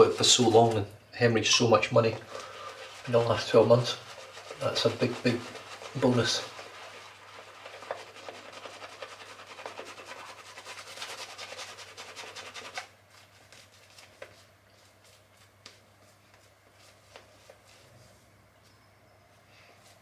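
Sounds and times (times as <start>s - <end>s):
shaving brush rubbing lather: 0.0s - 0.8s, 1.5s - 12.9s.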